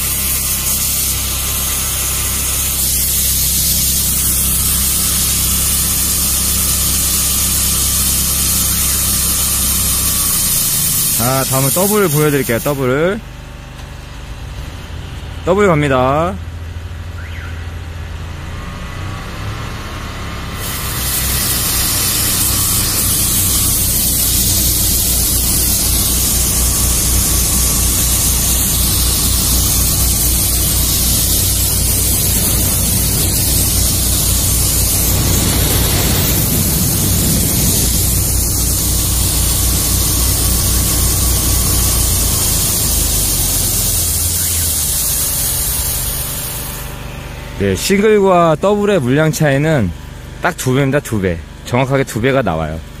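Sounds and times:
high-pressure water jet hissing: 0.0s - 13.2s, 20.4s - 48.0s
engines droning: 14.3s - 44.8s.

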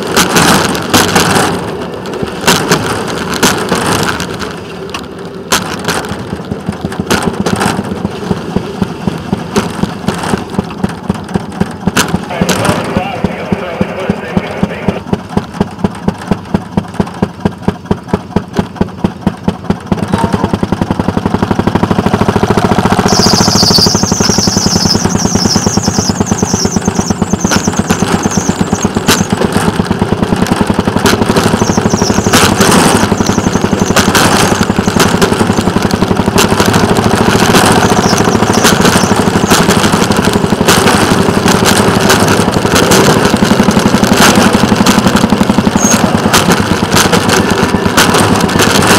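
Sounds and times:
rail motorcar engine running: 0.0s - 48.9s
high squeal: 23.0s - 29.3s, 31.5s - 35.5s, 37.7s - 39.5s, 45.7s - 46.1s.

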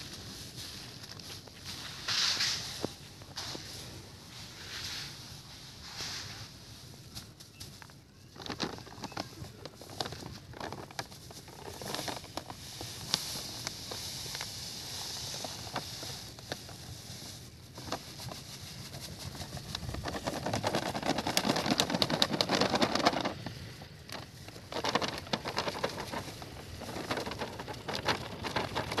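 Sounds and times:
plastic crinkling: 6.9s - 29.0s.

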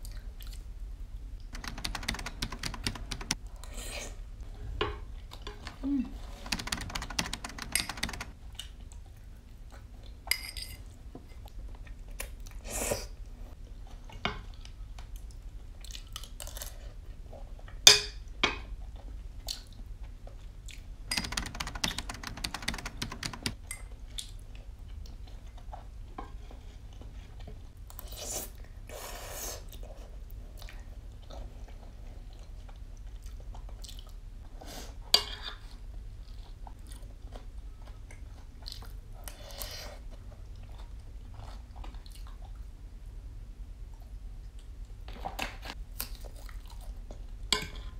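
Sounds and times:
chewing: 29.7s - 34.2s, 36.2s - 42.7s, 46.0s - 47.4s.

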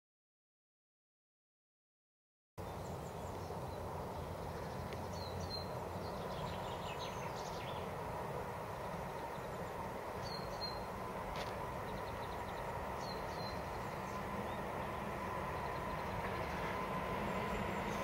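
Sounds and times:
low outdoor rumble: 2.6s - 18.0s
bird chirps: 11.9s - 14.6s.

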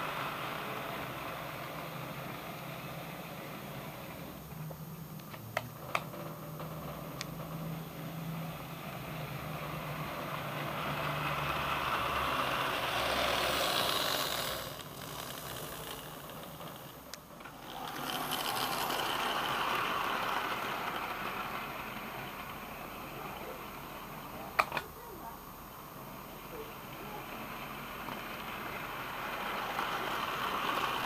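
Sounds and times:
model train whirring and rattling: 0.0s - 31.0s
sharp clicks: 24.6s - 24.9s.

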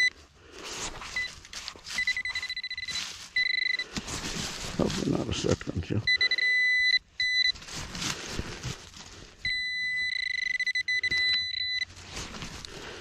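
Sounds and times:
leaves and soil rustling: 0.2s - 6.0s, 7.4s - 9.4s, 11.9s - 13.0s
pinpointer high-pitched beep tone: 1.1s - 3.9s, 6.0s - 7.6s, 9.4s - 11.9s.

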